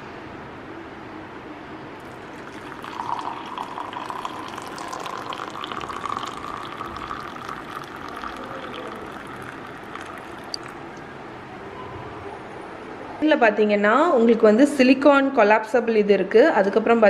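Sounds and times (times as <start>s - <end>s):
water pouring into a mug: 2.0s - 11.0s.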